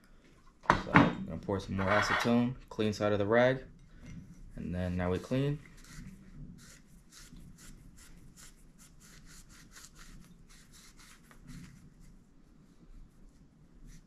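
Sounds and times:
rag rubbing metal: 0:01.7 - 0:02.4.

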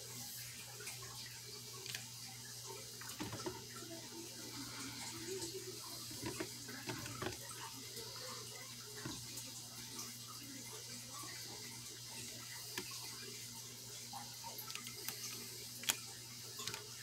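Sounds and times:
water sloshing: 0:03.0 - 0:03.8, 0:06.0 - 0:07.7
toy knocking against plastic tub: 0:03.1 - 0:03.6.

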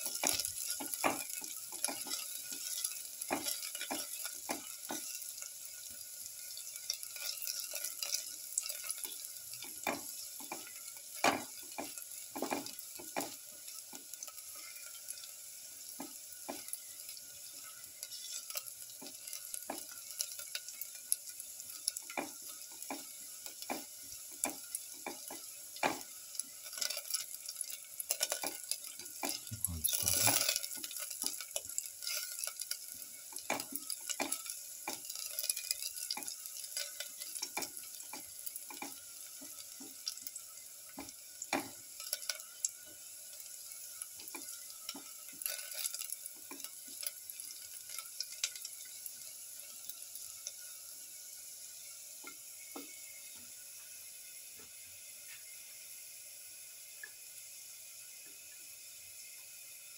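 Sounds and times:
shallots sizzling in hot oil: 0:00.0 - 0:59.9
spatula scraping a metal pan: 0:18.0 - 0:18.6, 0:32.0 - 0:32.4.

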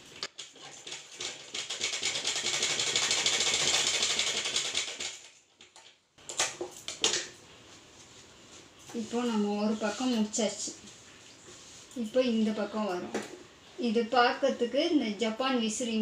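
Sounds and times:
sewing machine stitching: 0:00.3 - 0:05.3.

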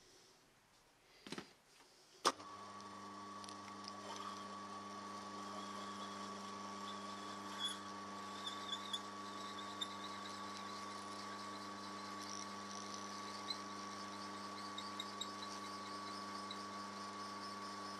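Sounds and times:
drilling machine hum and whine: 0:02.4 - 0:17.9
high chirps and ticks of cutting: 0:06.1 - 0:17.9.

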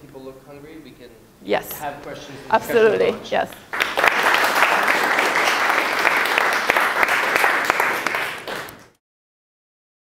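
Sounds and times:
audience clapping: 0:03.5 - 0:09.0.

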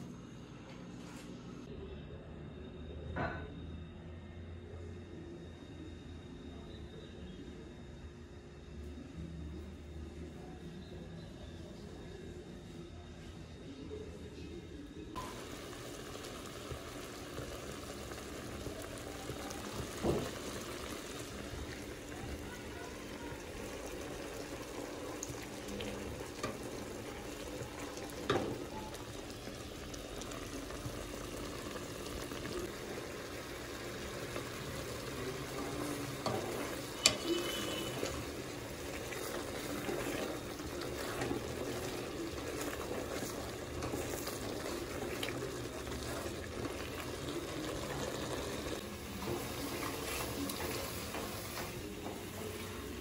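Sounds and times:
thick jam bubbling in a pot: 0:15.1 - 0:53.0
wooden spoon stirring and scraping: 0:34.3 - 0:53.0.

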